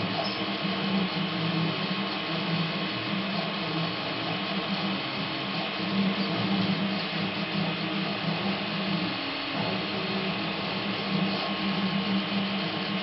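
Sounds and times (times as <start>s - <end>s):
video projector humming: 0.0s - 13.0s.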